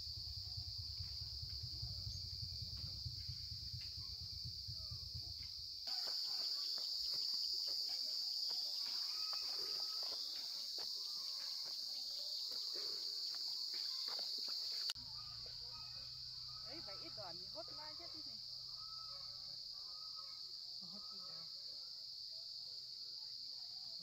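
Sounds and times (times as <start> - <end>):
low rumble: 0.0 - 5.8
insect chorus droning: 0.0 - 24.0
small chirps: 3.8 - 21.4.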